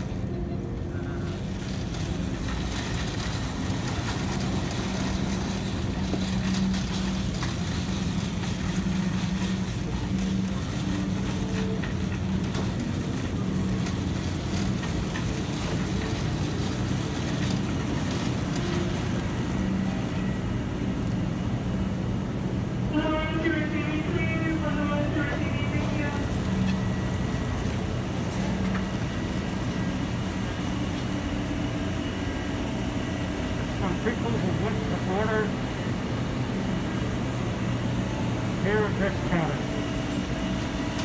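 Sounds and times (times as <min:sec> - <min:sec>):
cart wheels rumbling on tile: 0:00.0 - 0:21.2, 0:25.0 - 0:32.3, 0:39.1 - 0:41.0
wire basket rattling: 0:01.1 - 0:19.7.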